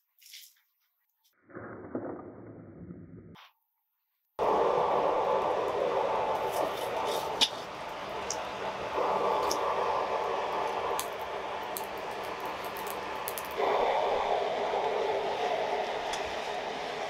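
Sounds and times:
air rushing into forge: 4.4s - 17.0s
charcoal crackling and popping: 6.3s - 13.6s.

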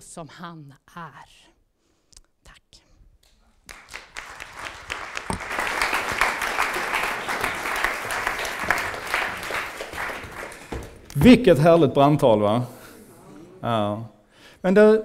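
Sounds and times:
audience applauding: 3.6s - 11.1s.

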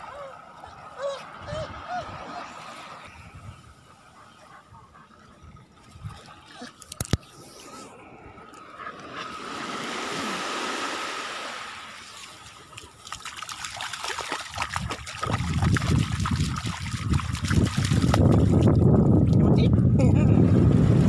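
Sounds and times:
wind rumble on microphone: 3.0s - 3.9s, 14.5s - 21.0s
dog paws splashing in water: 12.1s - 19.4s.

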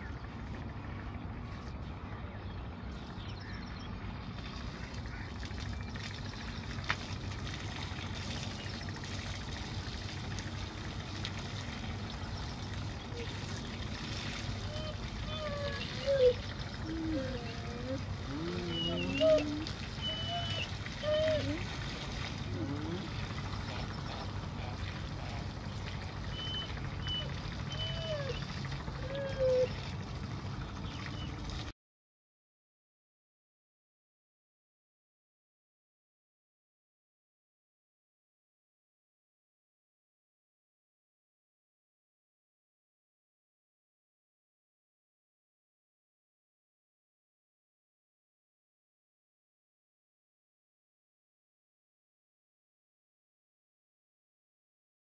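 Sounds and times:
low hum: 0.0s - 31.7s
rising-and-falling calls: 14.7s - 21.6s.

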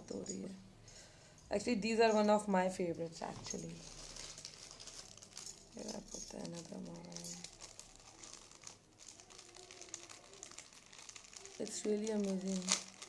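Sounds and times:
plastic packaging crinkling: 3.2s - 13.0s.

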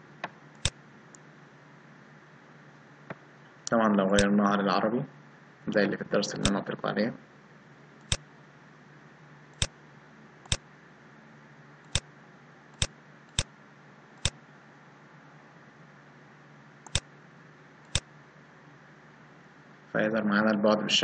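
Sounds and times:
faint steady hum: 0.0s - 21.0s
computer mouse clicking: 16.8s - 17.1s, 17.9s - 18.1s.

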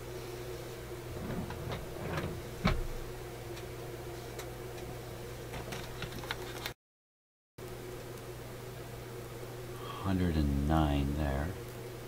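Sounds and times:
electrical hum: 0.0s - 6.8s, 7.6s - 12.0s
clicks and knocks of handling: 5.5s - 6.7s.

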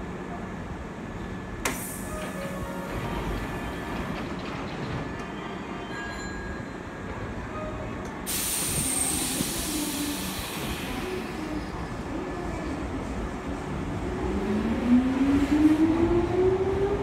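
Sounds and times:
compressed air hiss: 8.3s - 10.9s.

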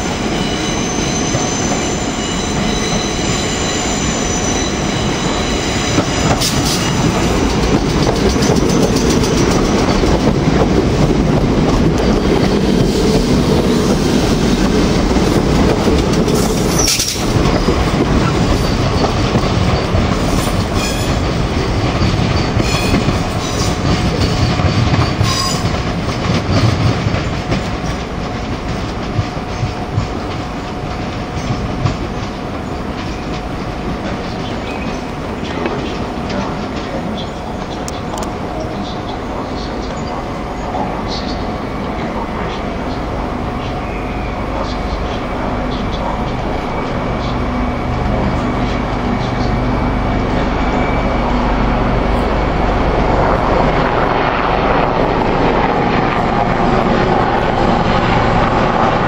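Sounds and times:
high wheel squeal: 0.0s - 7.7s, 16.4s - 21.2s
train rumbling past: 0.0s - 59.0s
wheels clattering over rail joints: 6.0s - 13.7s.

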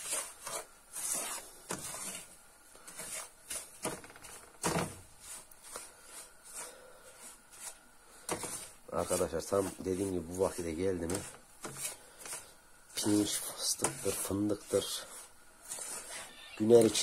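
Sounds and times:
wooden spatula scraping frying pan: 0.0s - 17.0s.

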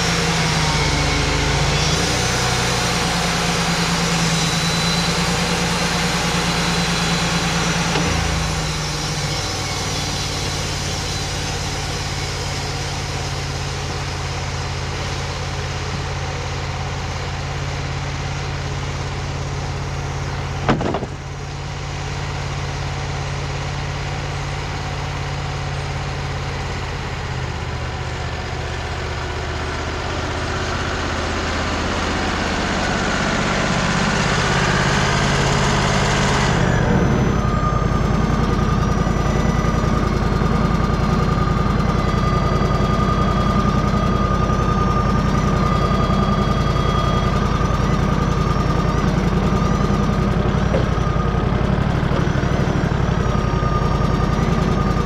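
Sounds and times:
sawmill engine running: 0.0s - 55.0s
sharp clank: 20.6s - 21.4s.

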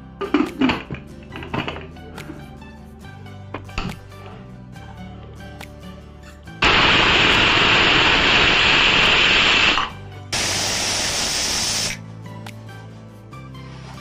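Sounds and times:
background music: 0.0s - 14.0s
pressure cooker whistling: 6.6s - 12.0s.

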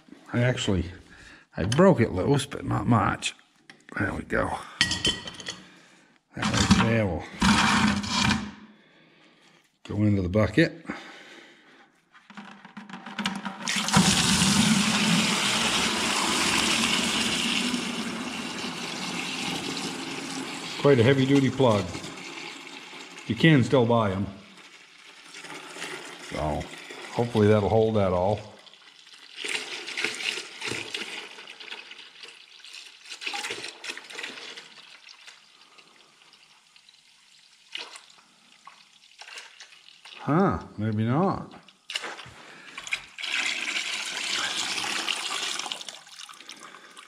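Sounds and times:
liquid gushing into bucket: 13.2s - 40.2s, 41.9s - 47.0s.

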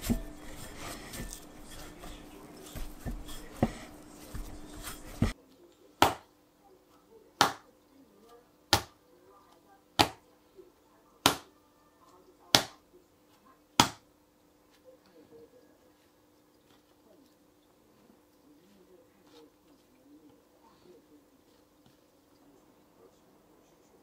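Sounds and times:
hands mixing dough in bowl: 0.0s - 24.0s
dough slapped on wooden board: 6.0s - 6.3s, 7.4s - 7.7s, 8.7s - 9.0s, 10.0s - 10.2s, 11.2s - 11.5s, 12.5s - 12.8s, 13.8s - 14.1s.

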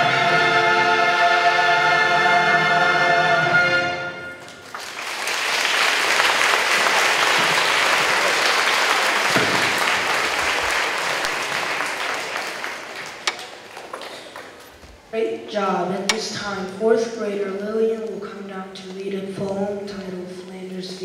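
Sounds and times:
audience applause: 4.4s - 14.7s.

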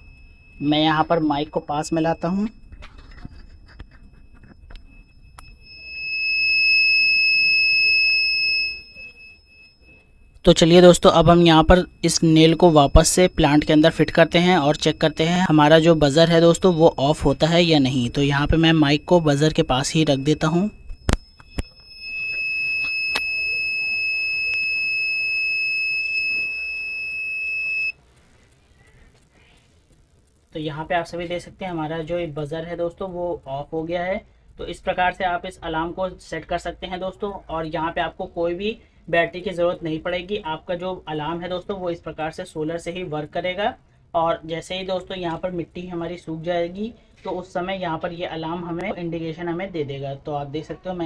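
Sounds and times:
buzzer high-pitched tone: 0.0s - 32.3s.

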